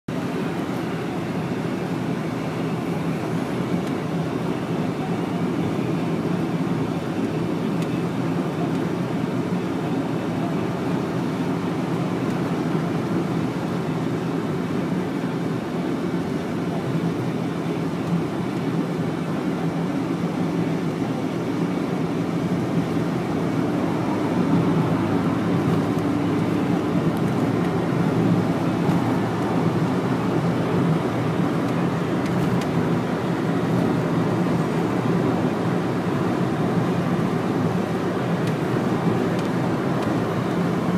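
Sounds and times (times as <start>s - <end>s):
car cabin road noise: 0.1s - 40.9s.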